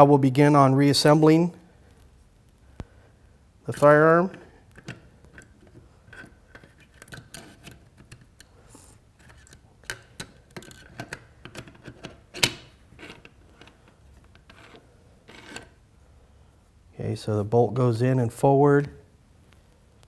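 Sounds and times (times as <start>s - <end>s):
metal bolt clicks and scrapes: 4.2s - 15.8s.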